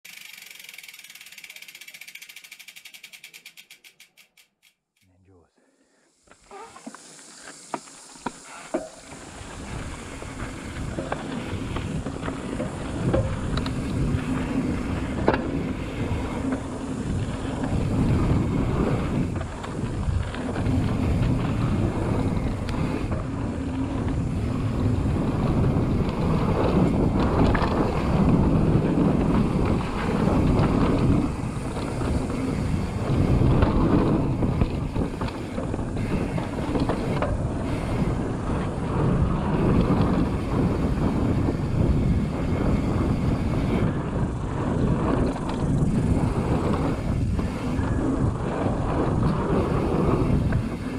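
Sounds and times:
bike tyres rattling on dirt: 0.0 - 4.7, 6.3 - 50.9
sharp clicks: 0.1 - 5.1
wind buffeting microphone: 9.1 - 50.9.

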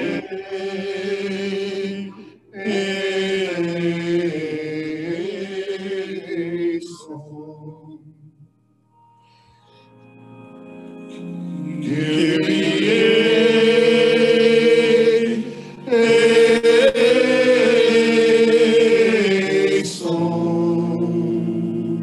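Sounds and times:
voices chanting: 0.0 - 7.5, 11.7 - 22.0
sustained organ tones: 0.0 - 22.0.

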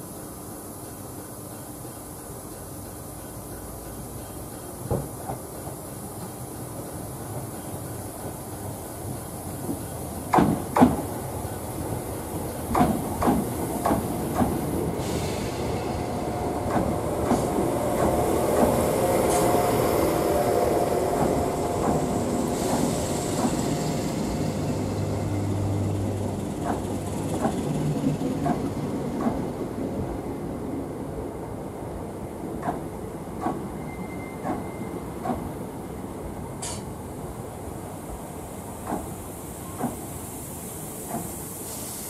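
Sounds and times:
train wheels clicking over rail joints: 2.5 - 20.4, 21.0 - 30.0, 32.5 - 33.8, 34.4 - 35.6, 38.8 - 41.8
train carriages rumbling: 2.8 - 41.5.

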